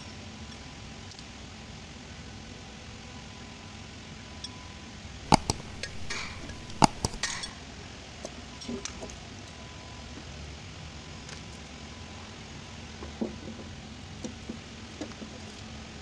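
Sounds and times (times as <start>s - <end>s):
steady background hum: 5.1s - 8.2s
sharp metallic clicks: 5.3s - 7.5s.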